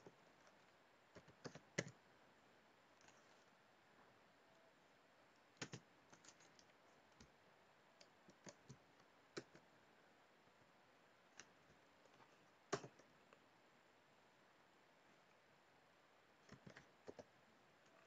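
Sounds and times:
faint room hiss: 0:00.0 - 0:18.0
keyboard keystrokes: 0:05.6 - 0:07.3, 0:12.7 - 0:13.1, 0:16.5 - 0:17.3.

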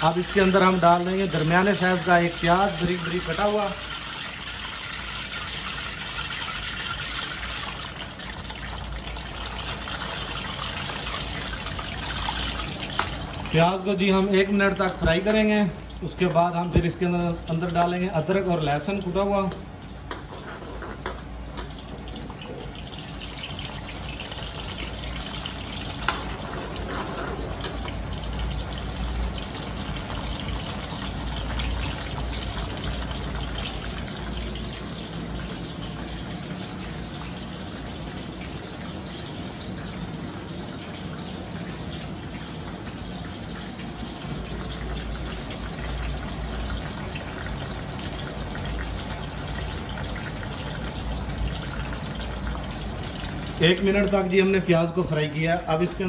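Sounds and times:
onions sizzling in hot oil: 0:00.0 - 0:36.7.

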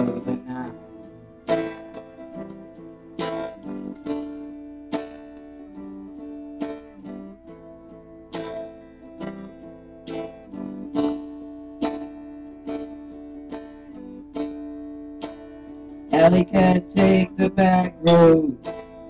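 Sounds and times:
electric guitar chords ringing: 0:00.0 - 0:19.0.

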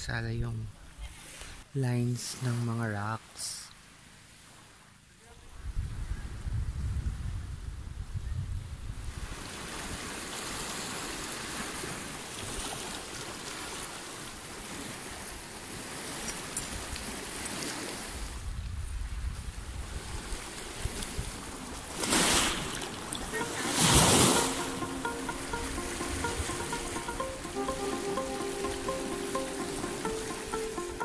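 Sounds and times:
wind rumbling on microphone: 0:05.5 - 0:10.1, 0:18.2 - 0:22.0.

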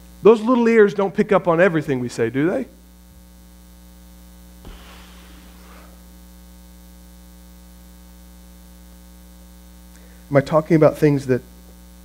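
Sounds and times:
electrical mains hum: 0:00.0 - 0:12.0
faint thump: 0:04.6 - 0:05.9.

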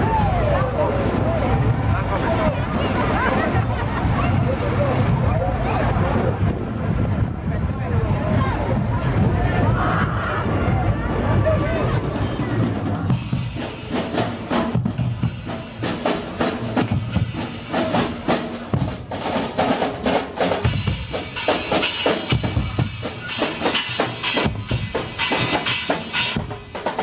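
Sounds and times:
bass drums: 0:03.6 - 0:27.0
snare drums: 0:13.0 - 0:27.0
cymbals: 0:13.1 - 0:27.0.

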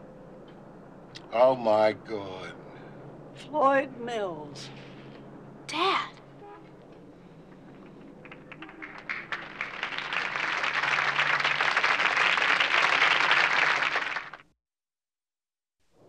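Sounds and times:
audience applause: 0:07.7 - 0:14.4.

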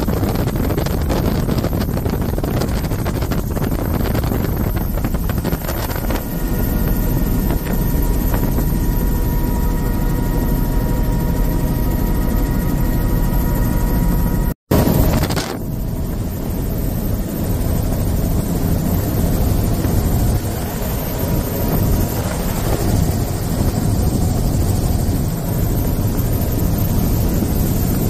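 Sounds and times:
helicopter rotor and engine drone: 0:00.0 - 0:28.0
steady high whine: 0:00.0 - 0:28.0.

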